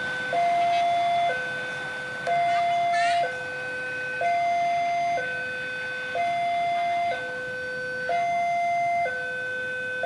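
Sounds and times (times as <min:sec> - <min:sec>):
level-crossing two-tone alarm: 0:00.0 - 0:10.0.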